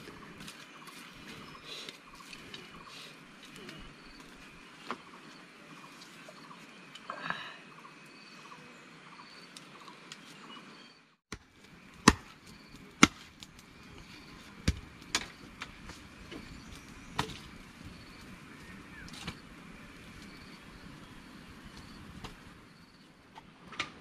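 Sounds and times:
sharp chopping knocks: 12.0s - 12.3s
faint insect drone: 12.3s - 23.2s.

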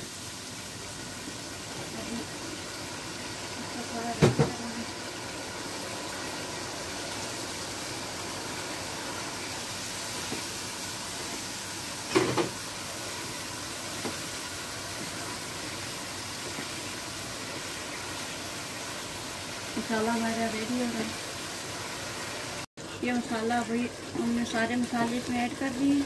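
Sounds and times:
food sizzling in oil: 0.0s - 26.0s
spatula stirring in pan: 13.0s - 19.0s.

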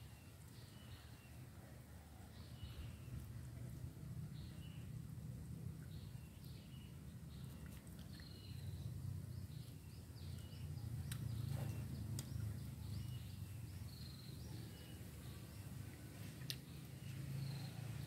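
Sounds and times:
birds chirping: 5.8s - 18.0s.

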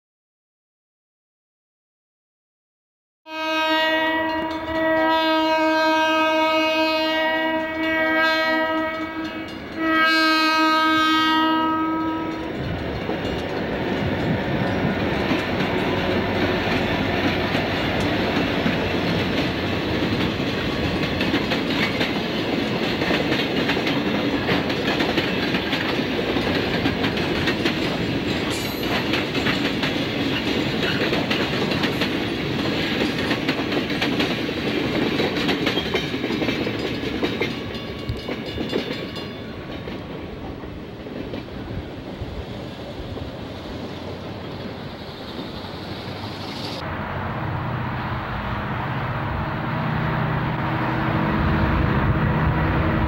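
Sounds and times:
locomotive air horn: 3.3s - 12.5s
train wheels clacking over rail joints: 12.0s - 42.4s.

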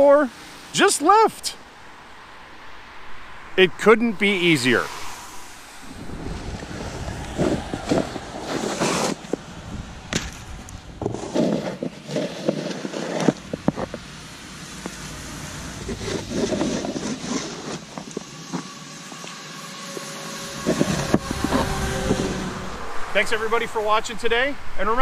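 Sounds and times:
snow shovels scraping snow: 5.9s - 9.4s, 11.0s - 14.0s, 14.7s - 22.4s.

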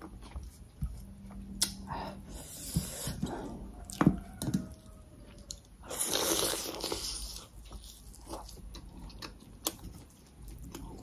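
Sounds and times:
noisy biting and chewing: 5.3s - 11.0s.

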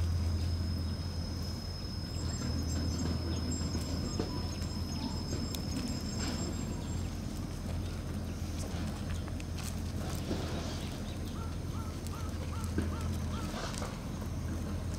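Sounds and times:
steady low hum: 0.0s - 14.9s
paws scuffing on gravel: 3.8s - 14.9s.

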